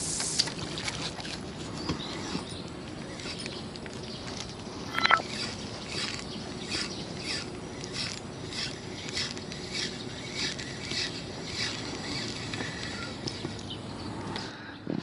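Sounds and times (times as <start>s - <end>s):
spinning reel whirring: 4.9s - 13.7s.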